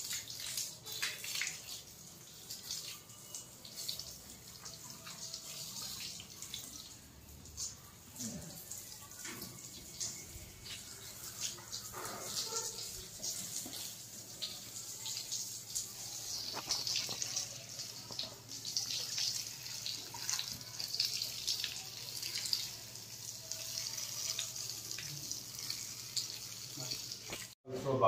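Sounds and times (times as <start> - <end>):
water splashing on concrete: 0.0 - 1.9
hose water spraying: 9.2 - 20.8.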